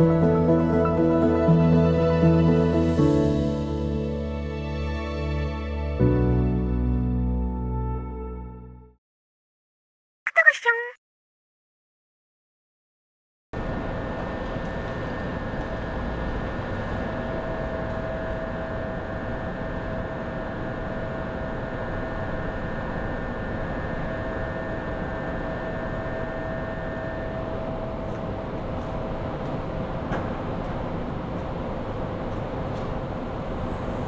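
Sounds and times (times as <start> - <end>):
steady whine: 13.6 - 34.0.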